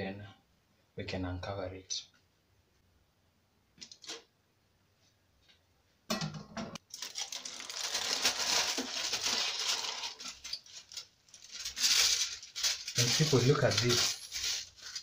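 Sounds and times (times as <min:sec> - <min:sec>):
aluminium foil crinkling: 0:06.8 - 0:15.0.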